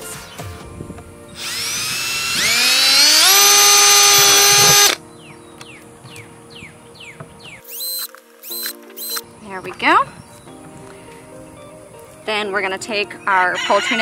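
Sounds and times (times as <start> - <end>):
cordless drill boring through plastic: 1.4 - 5.0.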